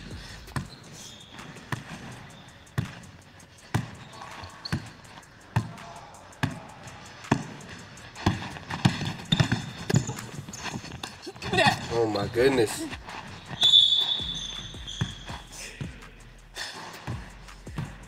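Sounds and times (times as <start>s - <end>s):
basketball bouncing on hardwood floor: 3.7s - 4.0s, 8.2s - 10.8s, 13.6s - 15.4s.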